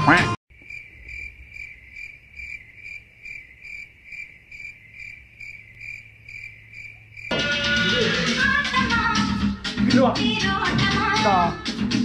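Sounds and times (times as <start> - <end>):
cricket chirping: 0.5 - 7.3.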